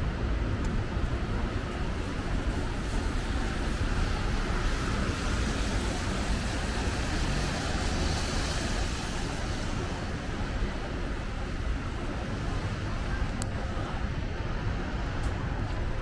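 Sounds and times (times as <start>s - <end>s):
city street traffic: 0.0s - 16.0s.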